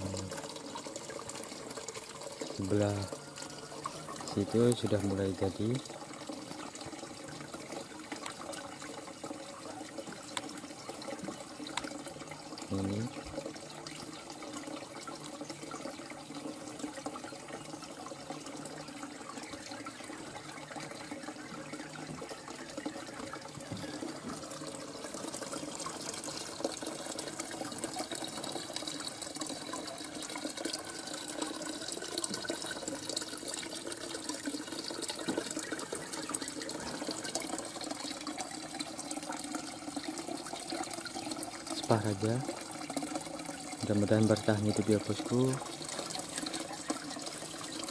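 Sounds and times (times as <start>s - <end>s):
running splashing water: 0.0s - 47.9s.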